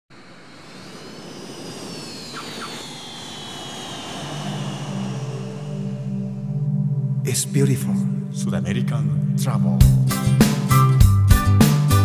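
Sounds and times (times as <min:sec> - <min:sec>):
jet engines roaring: 0:00.1 - 0:07.3
high whine falling in pitch: 0:00.1 - 0:08.3.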